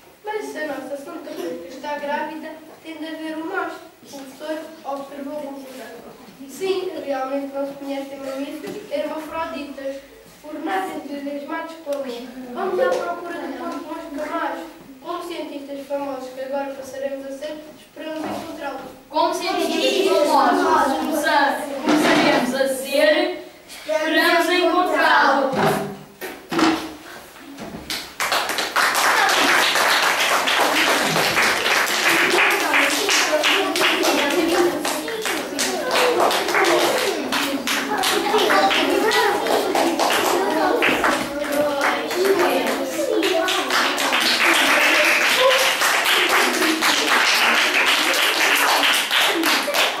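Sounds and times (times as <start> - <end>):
excited children's voices: 0.2 - 25.9, 28.8 - 50.0
audience clapping: 27.9 - 50.0.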